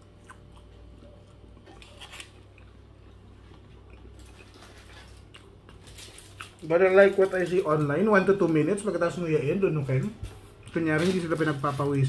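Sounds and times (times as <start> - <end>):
chewing a burger: 0.0 - 7.4
low steady hum: 0.0 - 12.0.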